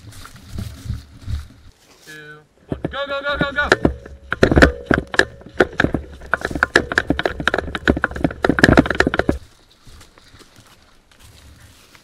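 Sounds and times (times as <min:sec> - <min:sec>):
footsteps crunching through dry leaves: 0:00.0 - 0:02.3, 0:09.4 - 0:12.0.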